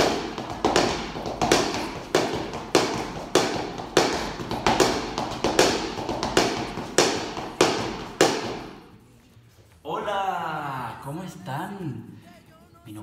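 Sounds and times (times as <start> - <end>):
stick striking wooden floor: 0.0 - 8.8.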